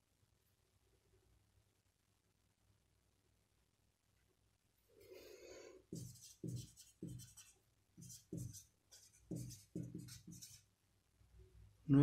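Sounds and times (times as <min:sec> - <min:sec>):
marker pen strokes: 0:05.9 - 0:10.7.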